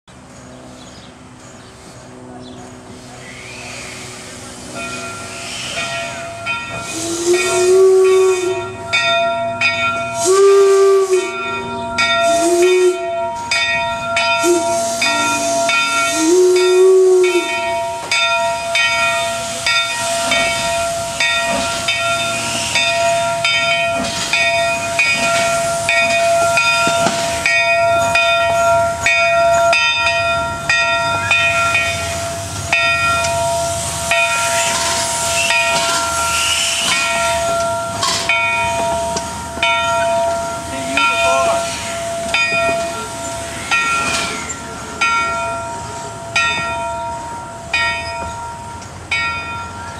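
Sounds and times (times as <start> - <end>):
steam hissing: 2.8 - 8.8, 9.7 - 46.4
steam locomotive whistle blasts: 3.2 - 4.5, 5.1 - 9.0, 10.0 - 13.6, 14.3 - 21.2, 21.8 - 23.5, 33.5 - 39.4.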